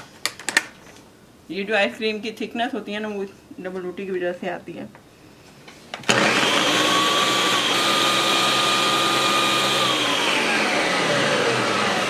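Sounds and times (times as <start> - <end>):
blender running: 6.0 - 12.0.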